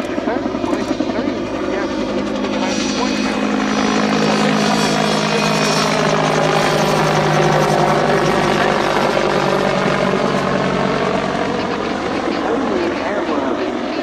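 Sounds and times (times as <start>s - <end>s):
helicopter flying past: 0.0s - 14.0s.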